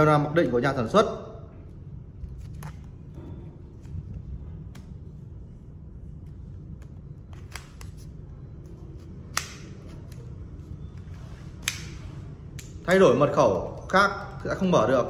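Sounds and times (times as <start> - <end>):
low hum: 0.7 - 15.0.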